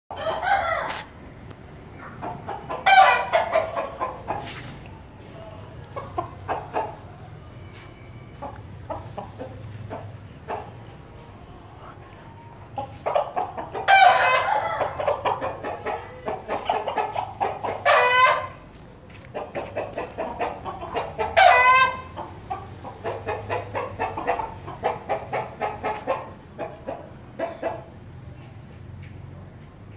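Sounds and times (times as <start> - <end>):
loud chicken calls: 0.1 - 1.1, 2.0 - 4.7, 12.8 - 18.6, 19.8 - 27.8
chickens clucking: 1.9 - 28.6.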